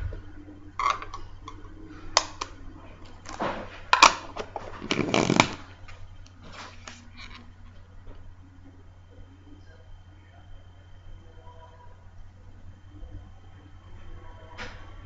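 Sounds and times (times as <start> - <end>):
hands rubbing plastic capsule: 4.5 - 5.6.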